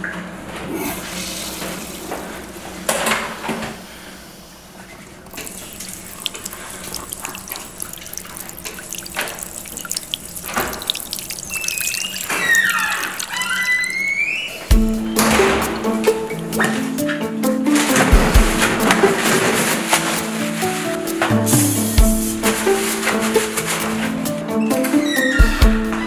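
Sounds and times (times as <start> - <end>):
hands washing with splashing: 5.2 - 16.9, 17.8 - 24.4
tap running into a sink: 5.3 - 14.0.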